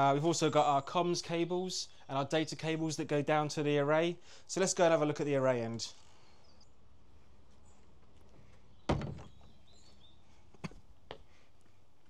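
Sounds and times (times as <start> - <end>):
wooden door thud: 8.9 - 9.6.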